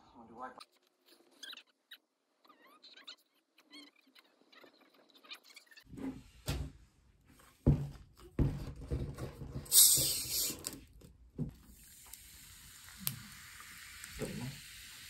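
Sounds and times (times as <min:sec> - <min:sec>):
bottle opening hiss: 0:09.7 - 0:10.8, 0:11.7 - 0:15.0
cola pouring and fizzing: 0:11.5 - 0:15.0.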